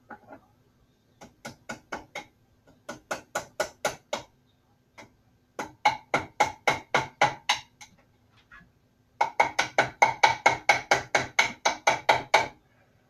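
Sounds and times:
hammer tapping nails into wood: 5.0 - 8.0, 9.2 - 12.6.

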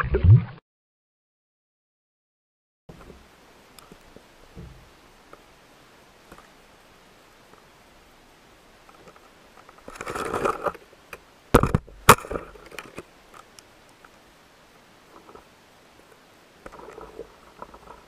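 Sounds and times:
faint ticks: 5.3 - 5.5, 12.6 - 14.2.

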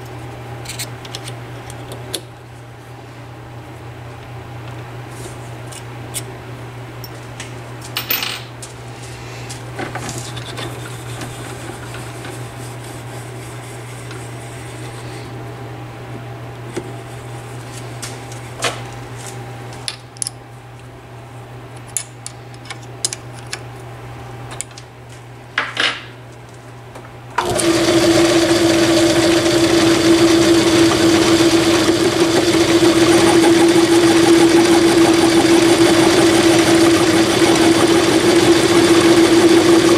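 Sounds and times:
lathe running: 27.4 - 39.9.

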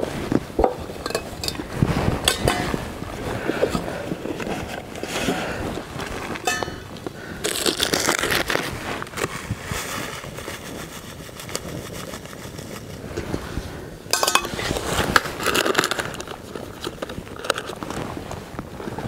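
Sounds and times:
cardboard box rustling and crackling: 3.8 - 13.0.

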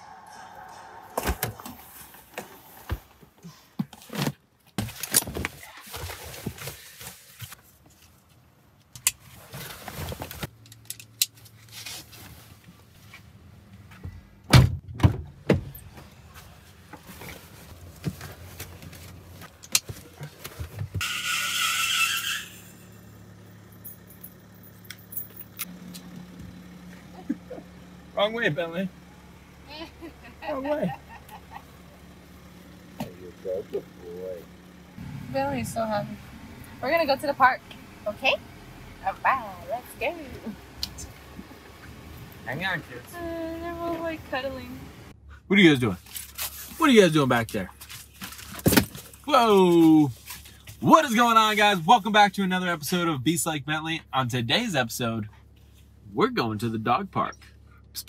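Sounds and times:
high squeal: 0.0 - 2.9, 21.0 - 23.2
low steady hum: 0.0 - 3.7, 22.5 - 45.4
keys jangling: 23.8 - 25.7.

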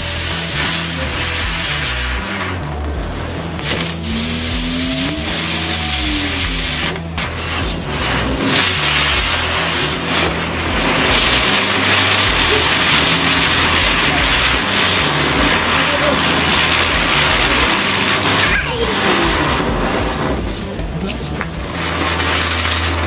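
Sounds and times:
firework spinning with loud hiss: 0.0 - 23.0
low bass notes: 0.0 - 23.0.

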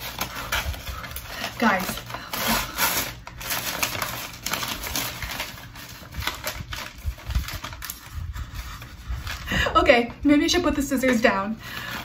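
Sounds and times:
scissors snipping paper: 0.0 - 8.2
paper rustling and crinkling: 0.0 - 12.0.

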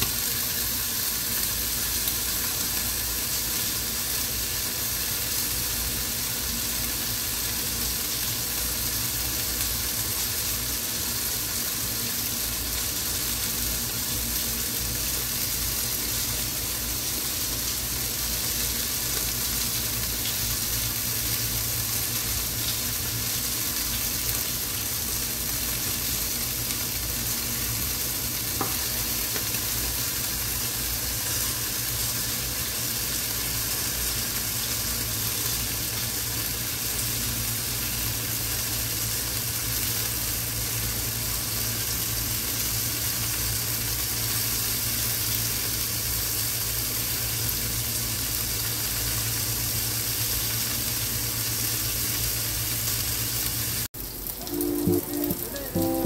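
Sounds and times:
chicken sizzling in a pan: 0.0 - 56.0.

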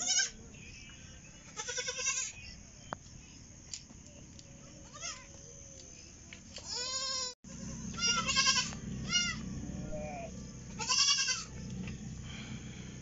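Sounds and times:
goats bleating: 1.5 - 2.4, 6.6 - 11.5.

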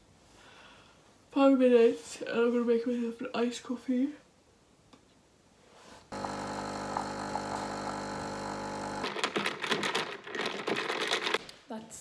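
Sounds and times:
coffee machine pump humming: 6.1 - 10.0.

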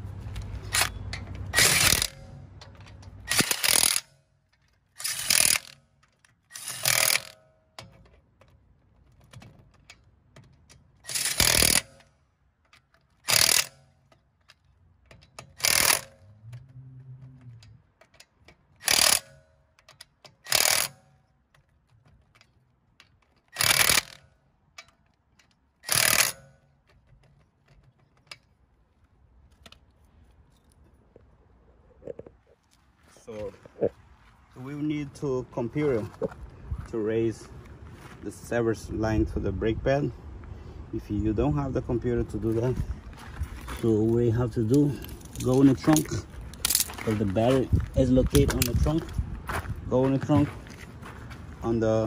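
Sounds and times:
impact wrench bursts: 0.6 - 8.0, 11.0 - 12.2, 13.0 - 16.6, 18.0 - 21.2, 23.2 - 24.5, 25.8 - 26.8.

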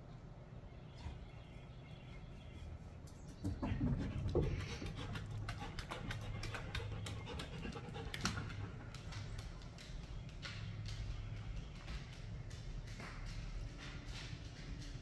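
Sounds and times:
dog panting: 3.9 - 9.9.

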